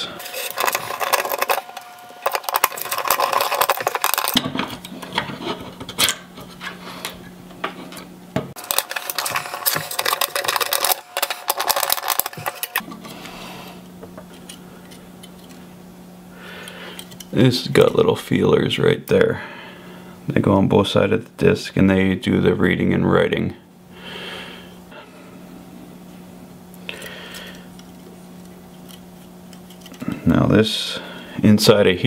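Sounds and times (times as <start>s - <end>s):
screwdriver and metal parts clicking: 0.0s - 5.2s, 8.6s - 12.9s.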